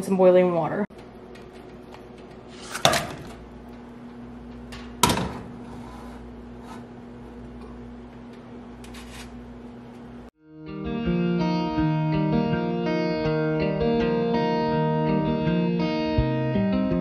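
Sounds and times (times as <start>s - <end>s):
steady low hum: 0.9s - 10.3s.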